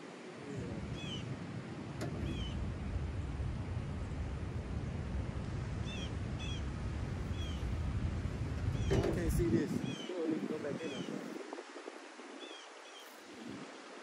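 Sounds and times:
wind rumbling on microphone: 0:00.0 - 0:14.0
bird chirping: 0:00.9 - 0:01.3, 0:02.2 - 0:02.6, 0:05.8 - 0:07.8, 0:09.8 - 0:10.1.

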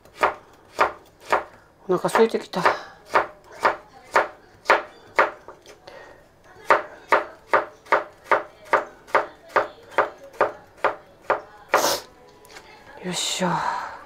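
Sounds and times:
knife chopping carrot on wooden board: 0:00.0 - 0:05.6, 0:06.6 - 0:11.9.

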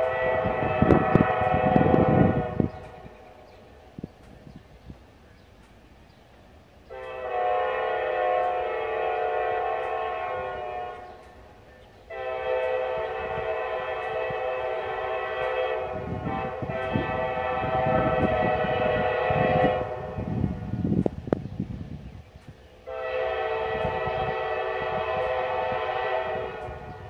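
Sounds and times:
locomotive air horn: 0:00.0 - 0:03.1, 0:06.9 - 0:11.4, 0:12.1 - 0:20.8, 0:22.8 - 0:27.0.

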